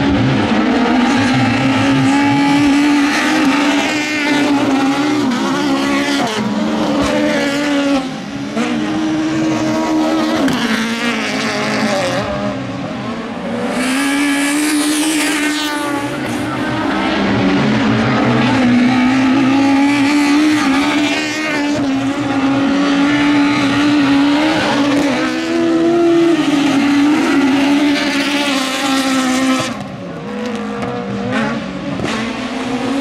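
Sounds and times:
race car engines revving: 0:00.0 - 0:33.0.

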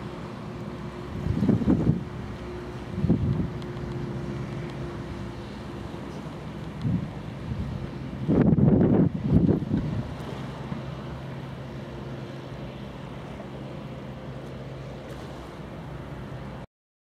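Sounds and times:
boat engine droning: 0:00.0 - 0:16.7
wind buffeting microphone: 0:00.8 - 0:05.6, 0:06.5 - 0:11.5.

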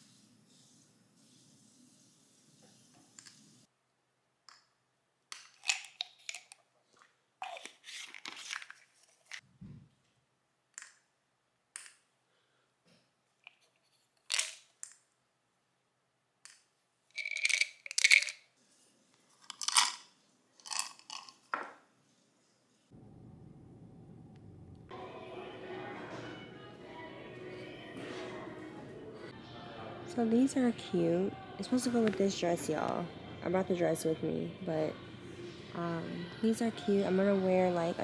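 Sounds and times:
bottle caps clicking: 0:05.3 - 0:06.6, 0:17.2 - 0:18.4, 0:19.4 - 0:21.6
tablets rattling: 0:05.4 - 0:06.6, 0:07.4 - 0:09.4, 0:17.1 - 0:18.5, 0:19.3 - 0:21.6.

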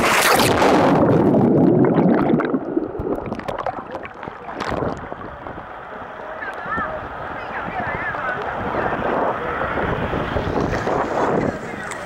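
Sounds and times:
seawater splashing and gurgling: 0:00.0 - 0:06.0.

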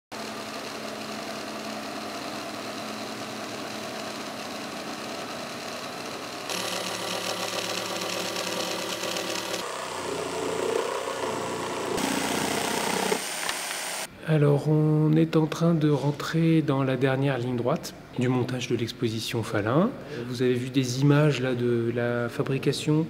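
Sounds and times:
jigsaw cutting plywood: 0:00.1 - 0:14.1.

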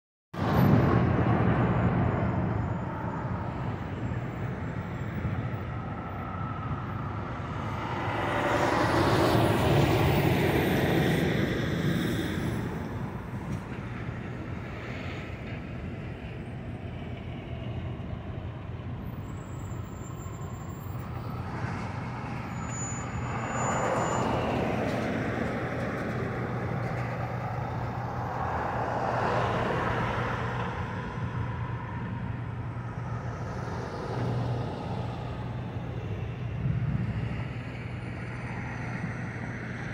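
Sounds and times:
trucks passing on road: 0:00.4 - 0:39.9
low engine hum: 0:23.2 - 0:39.9.

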